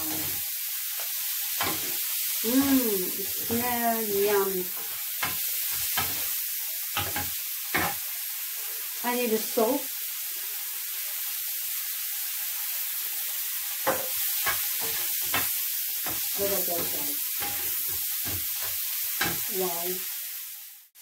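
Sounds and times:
prawns sizzling in a frying pan: 0.0s - 21.0s
wooden spatula scraping a pan: 13.9s - 19.5s.

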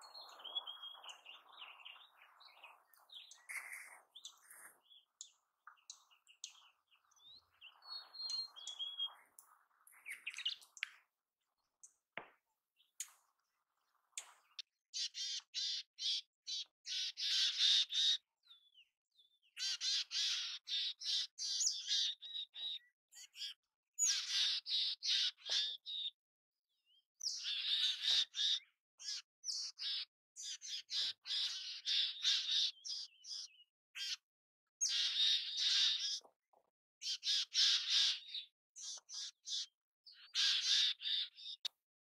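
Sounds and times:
chickadee calling: 3.1s - 6.7s, 40.2s - 41.6s.

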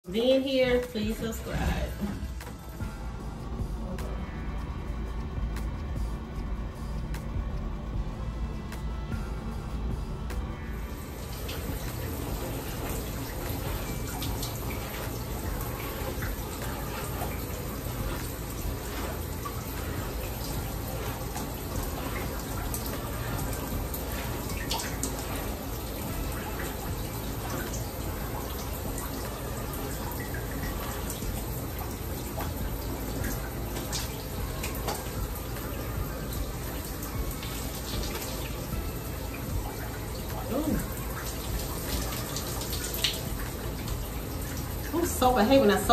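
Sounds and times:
water drips and splashes: 10.3s - 45.9s
shower spray of water: 10.9s - 45.9s.

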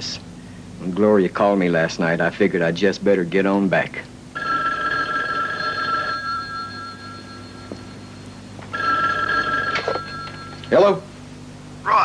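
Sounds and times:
telephone ringing: 4.4s - 11.0s.

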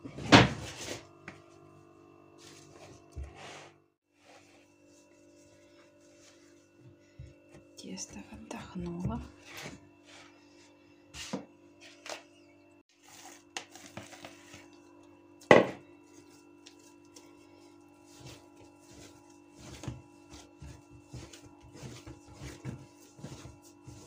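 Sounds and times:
hands kneading dough: 4.1s - 11.4s, 12.9s - 24.0s.

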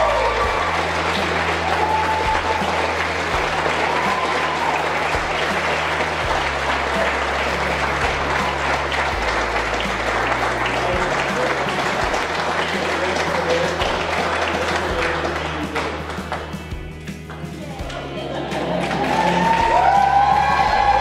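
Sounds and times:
whoops: 0.0s - 0.9s, 1.5s - 5.4s, 18.7s - 21.0s
guests applauding: 0.0s - 21.0s
music with slow bass line: 0.0s - 21.0s.

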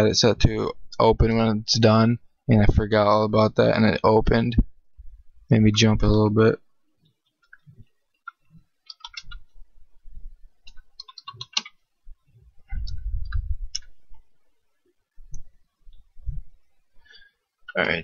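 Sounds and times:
dull low thuds: 12.1s - 14.3s, 15.2s - 16.7s.

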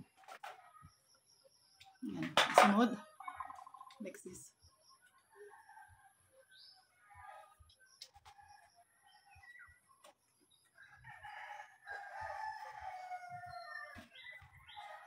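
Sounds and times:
rooster crowing: 10.8s - 14.1s.

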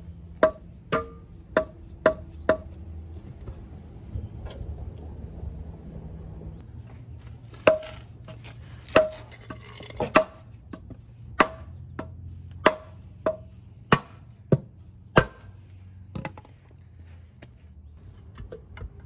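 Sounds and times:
hammer striking metal pan: 0.4s - 2.8s.

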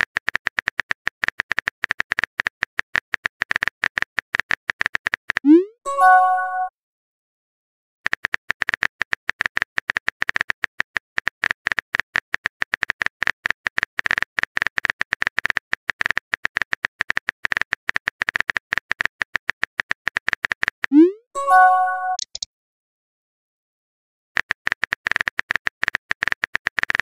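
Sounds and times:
phone keyboard key clicks: 22.2s - 22.5s.

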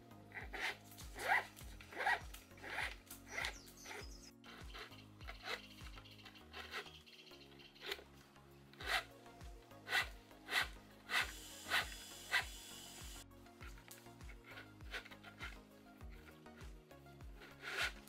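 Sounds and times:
plastic rope rubbing on rubber tires: 0.4s - 5.6s.

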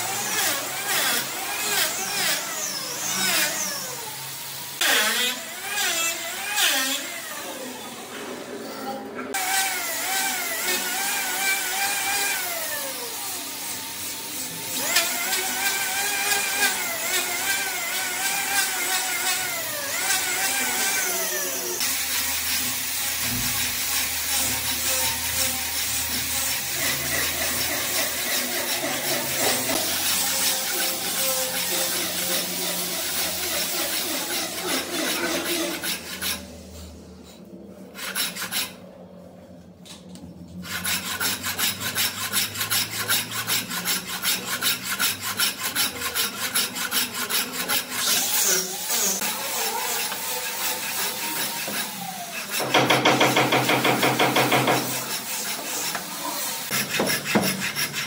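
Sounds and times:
hand tool rasping wood: 24.0s - 36.4s, 40.6s - 58.0s.

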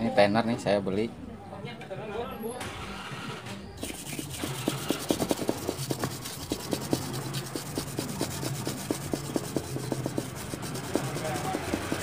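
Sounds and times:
scratchy scrubbing on circuit board: 3.8s - 12.0s.

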